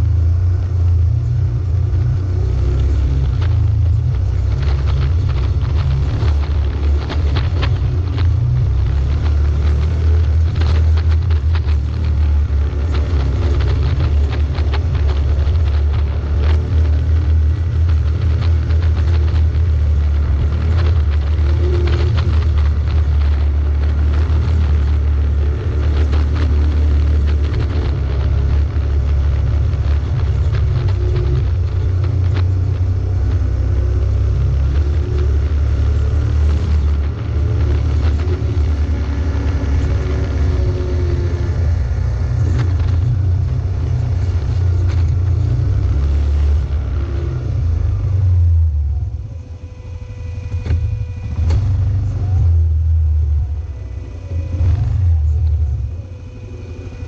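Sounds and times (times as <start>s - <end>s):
rattles and knocks from rocky road: 0.0s - 49.5s, 50.3s - 57.0s
off-road vehicle engine under load: 0.0s - 57.0s.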